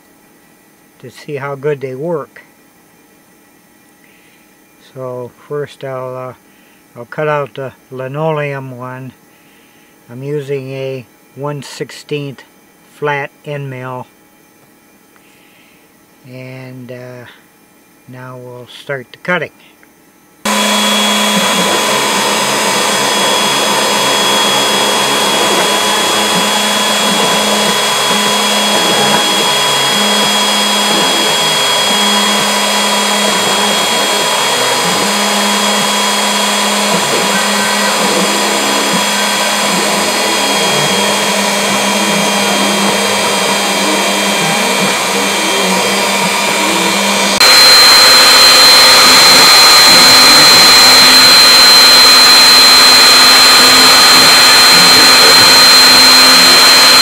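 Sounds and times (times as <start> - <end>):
cnc spindle whining: 20.4 - 57.0.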